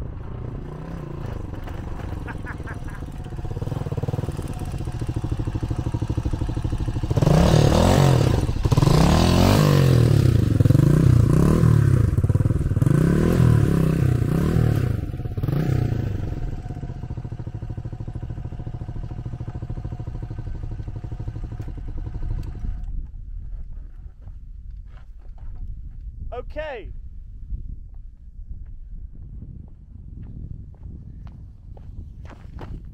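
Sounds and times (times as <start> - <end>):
motorcycle engine revving: 0.0 - 22.9
motorcycle engine idling: 0.1 - 22.9.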